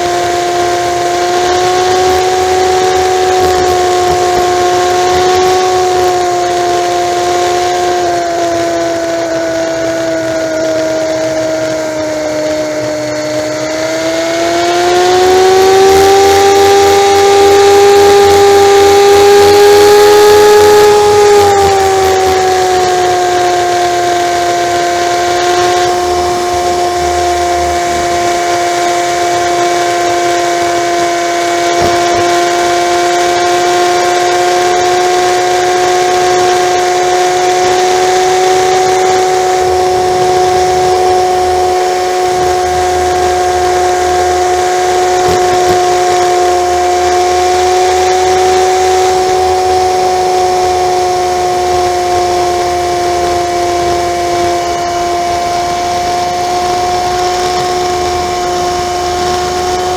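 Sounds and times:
motorcycle engine droning: 0:00.0 - 0:59.9.

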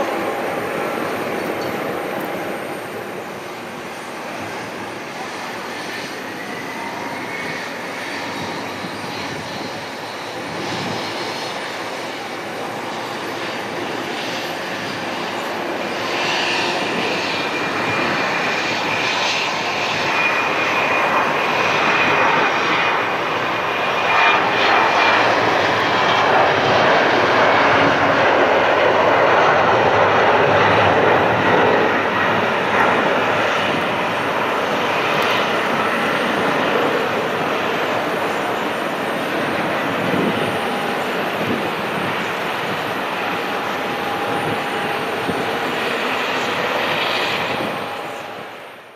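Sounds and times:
high steady engine whine: 0:00.0 - 0:48.9
jet engine roar: 0:00.0 - 0:48.9.

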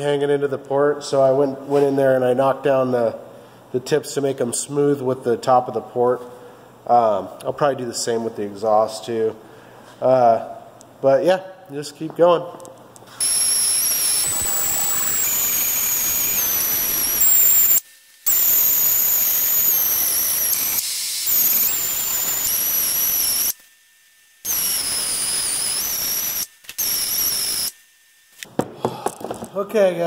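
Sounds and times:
air die grinder whining: 0:13.1 - 0:23.7, 0:24.4 - 0:27.8.

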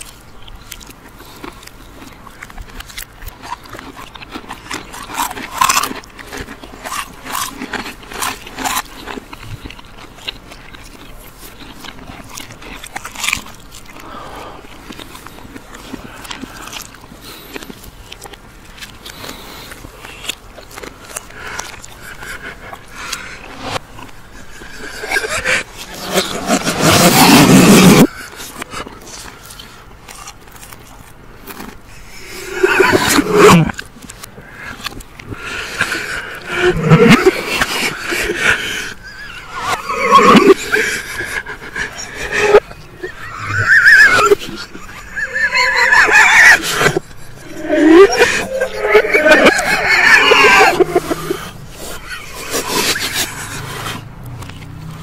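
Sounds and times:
stifled laughter: 0:24.6 - 0:28.1, 0:35.6 - 0:53.7.

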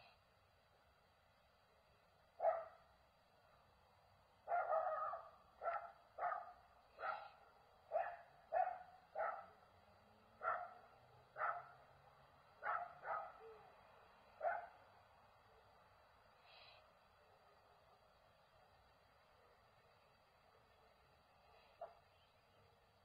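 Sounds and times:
dog barking: 0:02.4 - 0:02.8, 0:04.4 - 0:09.6, 0:10.4 - 0:11.8, 0:12.6 - 0:13.6, 0:14.4 - 0:14.8.

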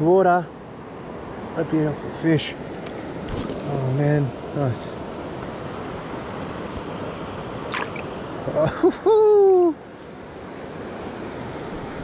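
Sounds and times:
water rushing over rocks: 0:02.6 - 0:08.5.

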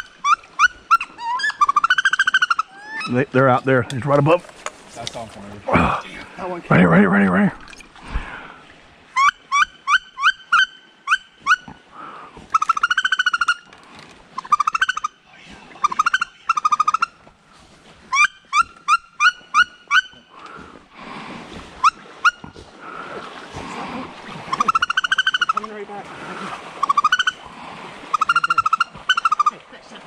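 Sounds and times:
high rising duck squeals: 0:00.0 - 0:03.1.

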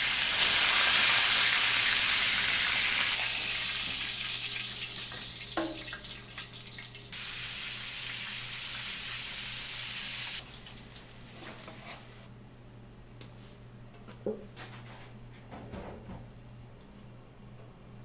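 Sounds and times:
beef sizzling in frying pan: 0:00.0 - 0:12.2.

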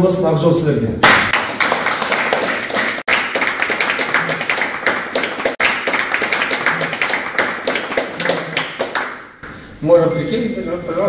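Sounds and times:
group applauding: 0:01.0 - 0:09.4.

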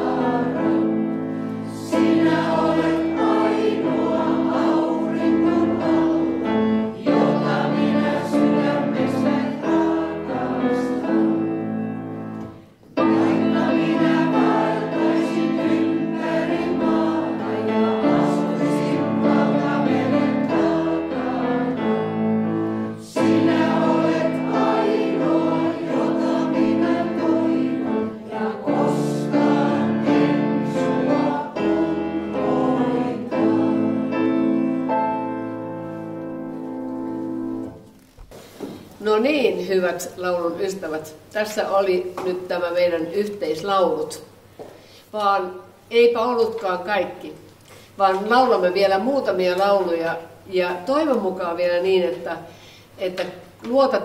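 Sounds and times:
choir singing folk song: 0:00.0 - 0:37.8
instrumental accompaniment: 0:00.0 - 0:38.8.

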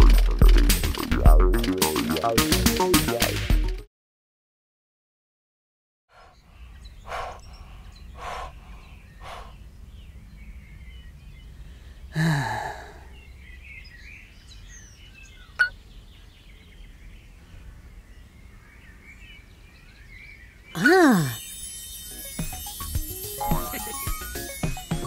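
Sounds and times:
faint birds chirping: 0:06.1 - 0:25.0
man sighing: 0:12.1 - 0:13.2, 0:20.8 - 0:21.4.

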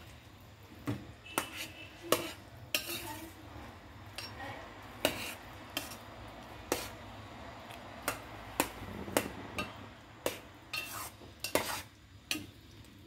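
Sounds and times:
spatula clinking against metal pot: 0:01.4 - 0:03.1, 0:04.1 - 0:04.4, 0:05.0 - 0:06.0, 0:08.0 - 0:12.6.

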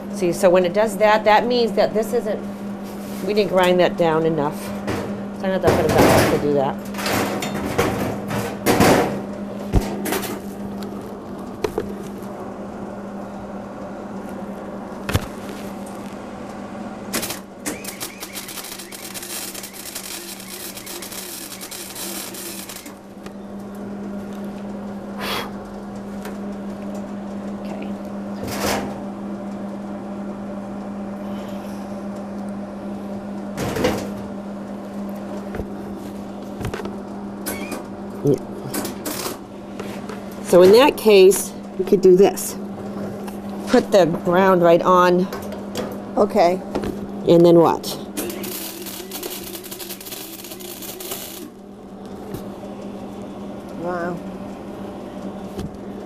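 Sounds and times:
steady low hum: 0:00.0 - 0:56.0
welder arc crackling: 0:17.1 - 0:23.3, 0:48.2 - 0:51.6.

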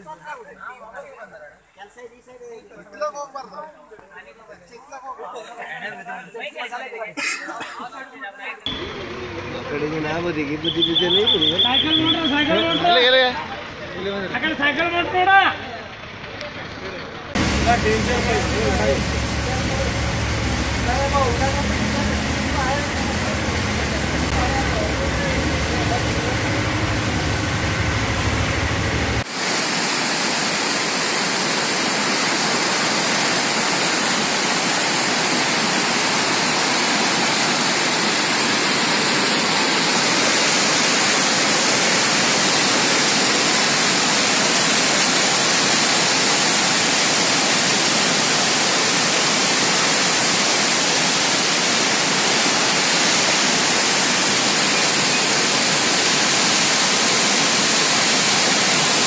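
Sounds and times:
floodwater rushing: 0:08.7 - 0:15.1, 0:17.3 - 0:59.0
vehicle engine hum: 0:08.7 - 0:29.3.

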